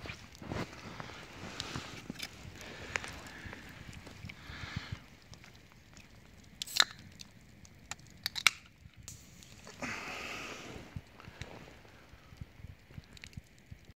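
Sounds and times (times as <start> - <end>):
crunching rustle: 0.0 - 9.0
campfire crackling: 0.0 - 13.9
sharp fire pops: 1.6 - 13.9.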